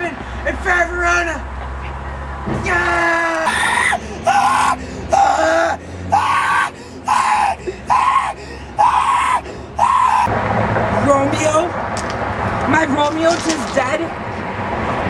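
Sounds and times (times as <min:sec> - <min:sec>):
boy screaming: 0:02.6 - 0:10.3.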